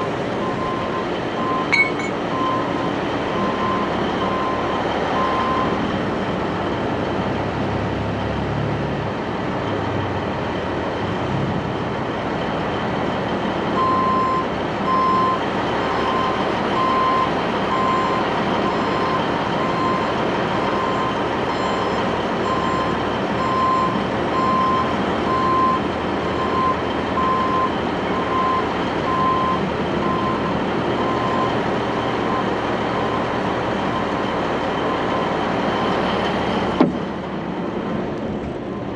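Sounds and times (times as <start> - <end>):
reversing alarm beeping: 0.0 - 5.8, 13.8 - 36.1
diesel engine idling: 0.0 - 38.9.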